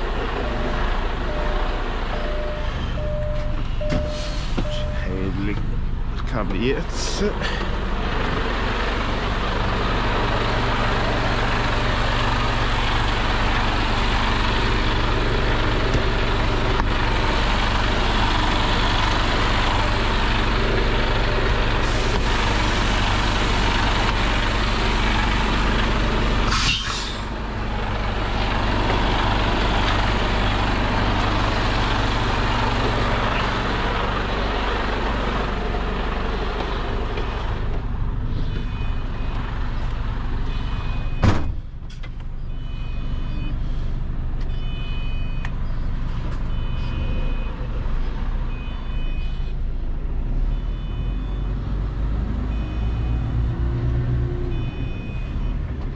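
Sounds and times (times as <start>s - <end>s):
diesel engine idling: 0.0s - 55.9s
compressed air hiss: 26.5s - 27.3s.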